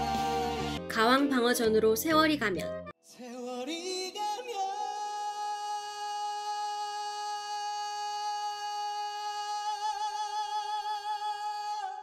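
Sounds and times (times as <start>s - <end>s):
soft backing music: 0.0s - 4.3s
man singing a long note: 3.2s - 12.0s.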